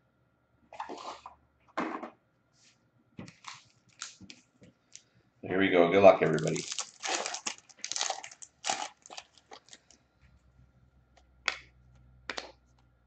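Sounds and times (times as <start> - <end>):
plastic wrapper tearing and crinkling: 3.4 - 5.0, 6.2 - 10.0.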